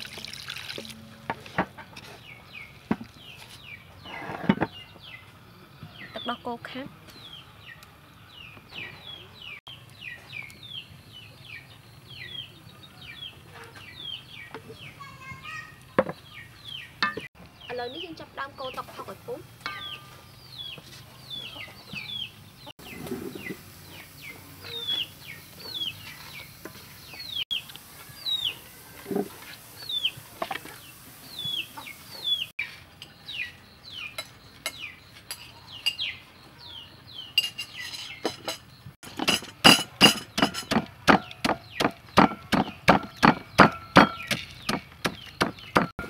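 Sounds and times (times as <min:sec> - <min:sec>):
bird chirping: 0:01.8 - 0:28.7, 0:29.8 - 0:46.0
utensils clinking: 0:17.0 - 0:17.3, 0:37.4 - 0:41.0
pestle pounding in mortar: 0:39.0 - 0:46.0.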